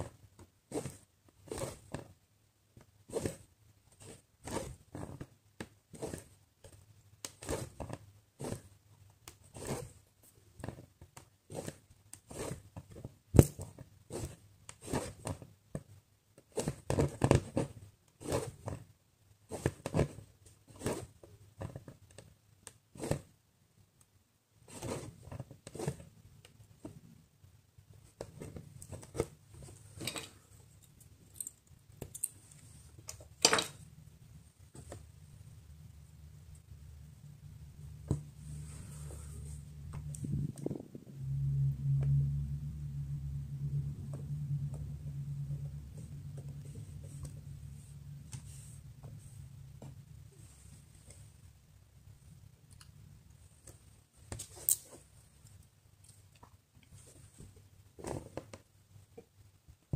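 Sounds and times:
thread pulled through cloth: 0:03.1 - 0:05.3, 0:09.4 - 0:10.0, 0:16.4 - 0:18.8.

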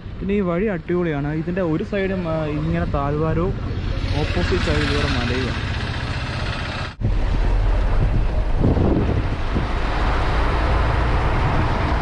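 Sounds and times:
moving vehicle rumble: 0:00.0 - 0:12.0
wind buffeting microphone: 0:07.0 - 0:12.0.

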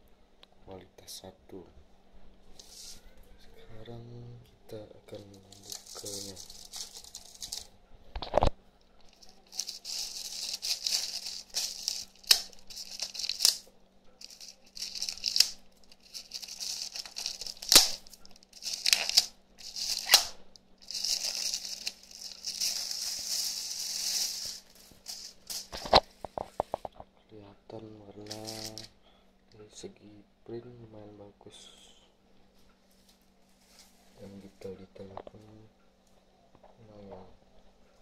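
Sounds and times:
plastic packaging crinkling: 0:05.1 - 0:26.9, 0:28.2 - 0:28.9.

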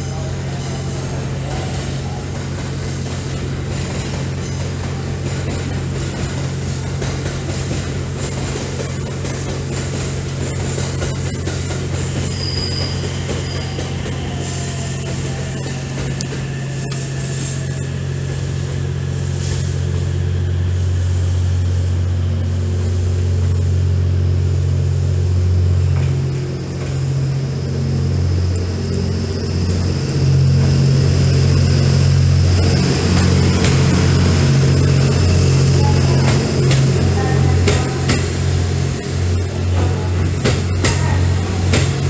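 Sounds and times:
train diesel engines humming: 0:00.0 - 0:42.0.

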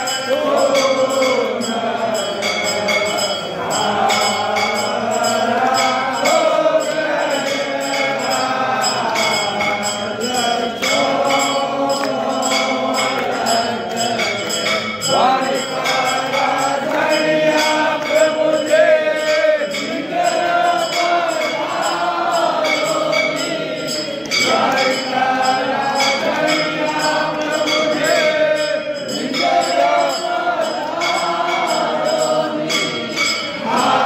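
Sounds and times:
bells ringing rapidly: 0:00.0 - 0:34.0
person singing devotional song: 0:00.0 - 0:34.0.

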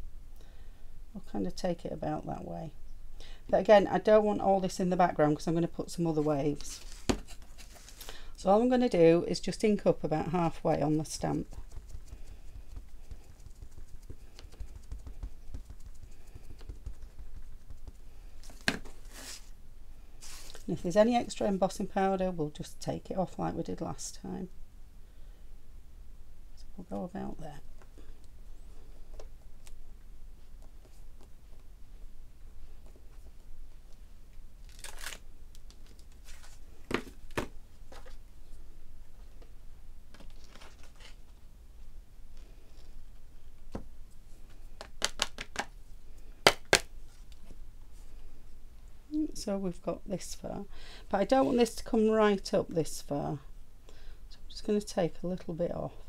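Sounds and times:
paper card rustling: 0:06.5 - 0:08.2, 0:11.2 - 0:19.5, 0:40.2 - 0:41.3.

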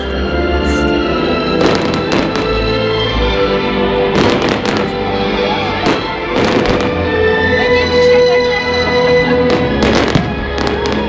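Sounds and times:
music with held notes: 0:00.0 - 0:11.0
fireworks bangs: 0:01.6 - 0:02.8, 0:04.1 - 0:07.1, 0:09.4 - 0:11.0.

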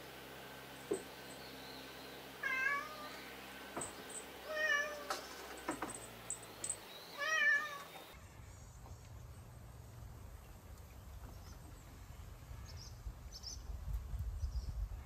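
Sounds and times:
cat meowing: 0:02.4 - 0:03.2, 0:04.4 - 0:05.1, 0:07.2 - 0:07.9.

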